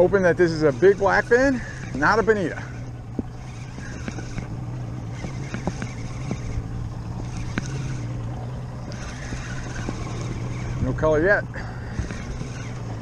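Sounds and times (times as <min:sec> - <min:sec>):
fishing reel clicking: 0:00.0 - 0:13.0
outboard engine running: 0:00.0 - 0:13.0
wind on microphone: 0:02.7 - 0:13.0.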